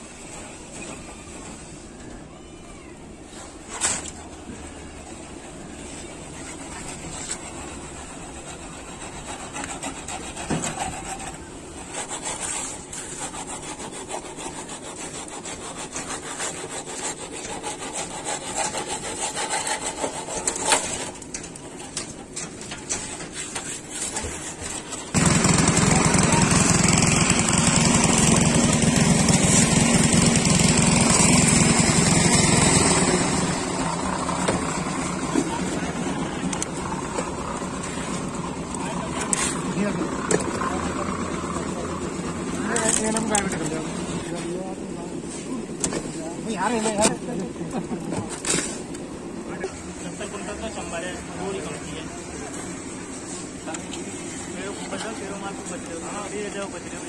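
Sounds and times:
concrete scraping and rubbing: 3.2s - 56.8s
loud steady noise: 25.1s - 39.0s.

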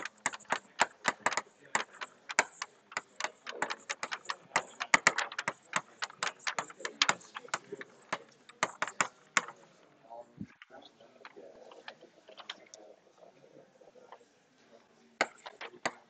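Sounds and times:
keys clicking: 0.0s - 9.6s.

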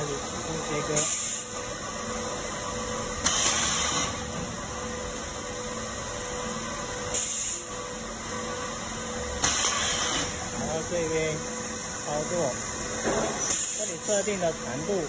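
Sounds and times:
motor and belt feeder hum: 0.0s - 15.0s
cutter hiss: 0.9s - 1.6s, 3.2s - 4.2s, 7.1s - 7.8s, 9.4s - 10.4s, 13.4s - 14.5s.

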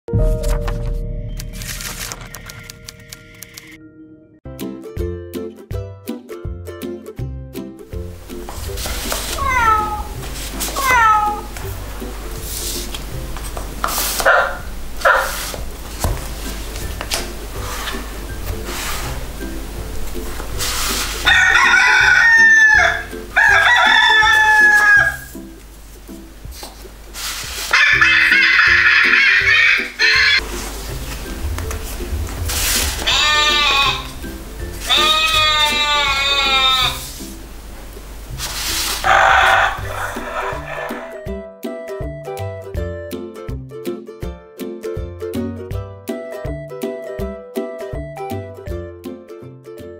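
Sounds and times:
soft background music: 0.1s - 49.9s
card rustle: 0.2s - 3.8s, 8.5s - 9.6s, 15.0s - 19.1s, 30.4s - 33.1s
card tab clicks: 0.3s - 3.8s
electronic cat meow: 9.3s - 11.5s, 27.7s - 30.4s, 33.0s - 34.1s, 34.8s - 37.1s
electronic dog barks: 14.2s - 15.5s, 27.7s - 30.4s, 39.0s - 41.2s
recorded goat bleats: 32.8s - 37.2s.

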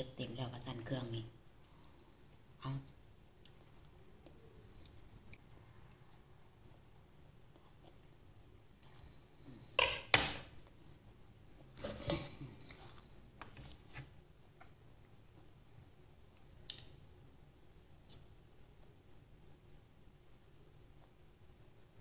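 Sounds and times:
quiet chewing: 1.5s - 9.8s, 10.6s - 19.3s.

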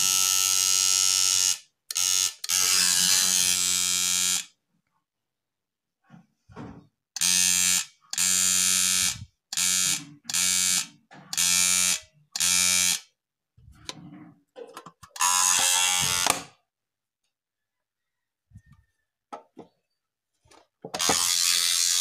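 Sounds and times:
alarm buzzer bursts: 7.2s - 13.0s.

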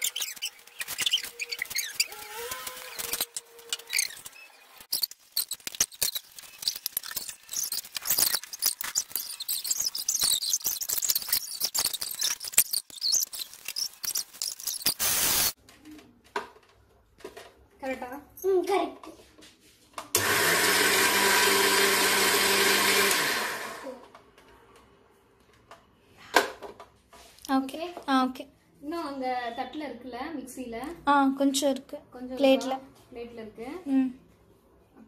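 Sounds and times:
thin squeak: 0.0s - 15.0s.

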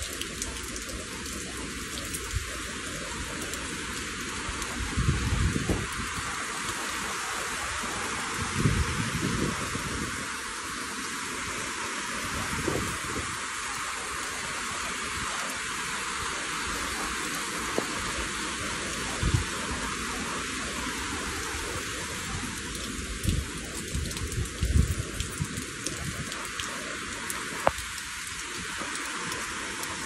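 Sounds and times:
rain falling: 0.0s - 30.0s.

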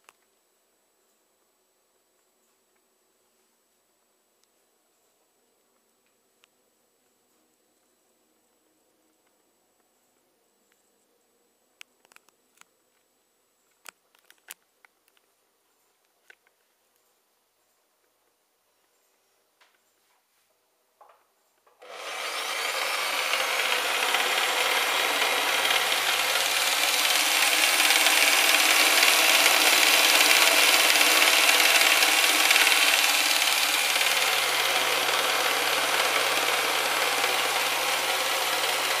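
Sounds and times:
jigsaw buzzing: 21.8s - 39.0s.

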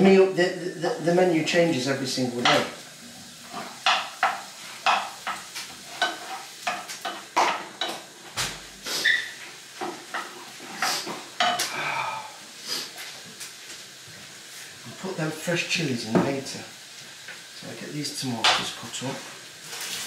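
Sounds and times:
faint frying sizzle: 0.0s - 20.0s
utensil scraping frying pan: 2.3s - 11.6s, 18.4s - 20.0s.

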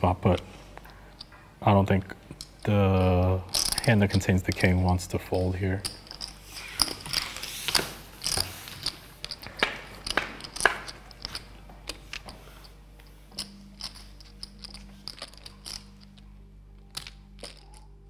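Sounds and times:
poker chips clicking: 5.8s - 12.4s, 13.3s - 16.2s, 16.9s - 17.9s.

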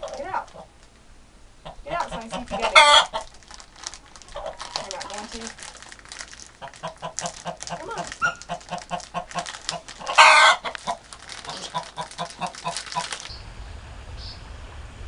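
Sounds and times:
hen clucking: 0.0s - 0.8s, 1.6s - 3.4s, 4.3s - 5.2s, 6.5s - 13.4s
loud harsh hen squawk: 1.6s - 3.3s, 6.6s - 12.8s.

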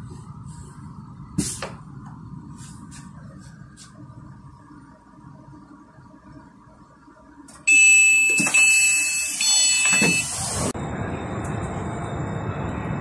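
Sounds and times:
train rumbling: 0.0s - 7.4s, 9.8s - 13.0s
electronic door warning beep: 7.7s - 10.5s.

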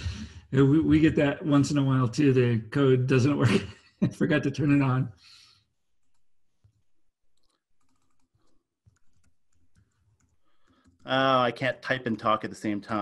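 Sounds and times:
typing on a computer keyboard: 6.0s - 11.3s.

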